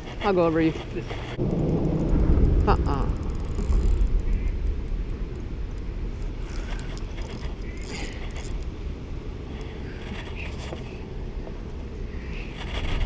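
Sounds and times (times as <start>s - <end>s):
wind buffeting microphone: 0.0s - 13.0s
fishing reel scratches and ticks: 3.4s - 4.6s, 6.2s - 8.7s, 12.3s - 13.0s.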